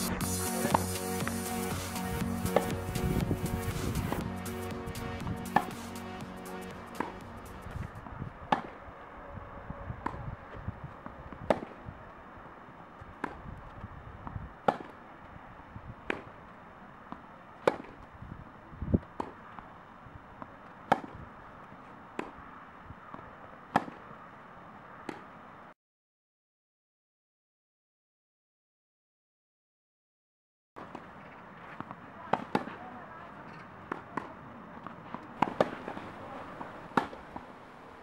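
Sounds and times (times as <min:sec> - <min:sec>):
tennis racket hitting ball: 0:02.3 - 0:04.3, 0:05.2 - 0:06.0, 0:06.8 - 0:07.9, 0:11.5 - 0:11.8, 0:14.2 - 0:15.0, 0:17.1 - 0:18.0, 0:20.9 - 0:21.2, 0:30.8 - 0:37.5.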